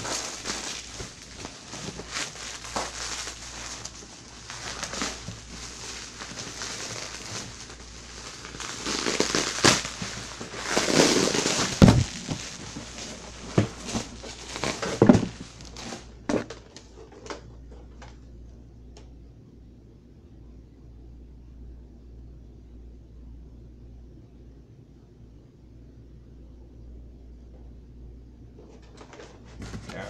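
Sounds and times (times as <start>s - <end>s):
packaging crackling and crinkling: 0.0s - 18.2s
heavy thump: 11.6s - 14.2s.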